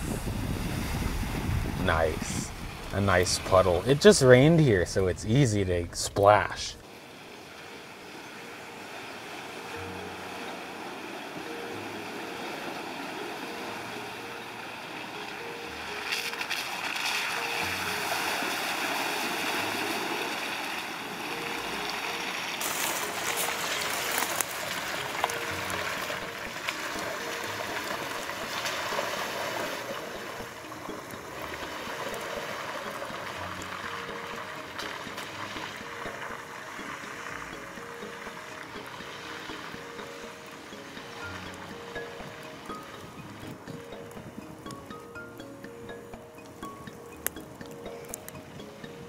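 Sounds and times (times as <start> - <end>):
tyres splashing through puddles: 9.7 - 44.0.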